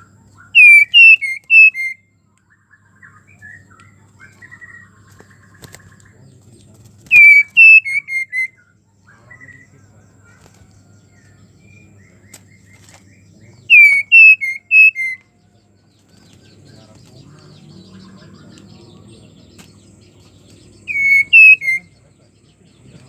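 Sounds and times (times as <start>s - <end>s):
bird whistled calls: 0.0s - 2.1s, 7.1s - 9.7s, 13.6s - 15.4s, 20.8s - 22.0s.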